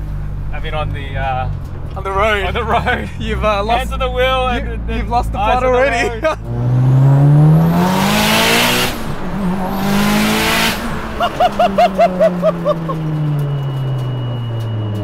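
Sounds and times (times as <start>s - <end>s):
turbo car engine accelerating: 0.0s - 15.0s
passenger laughing: 2.0s - 6.6s, 9.2s - 13.4s.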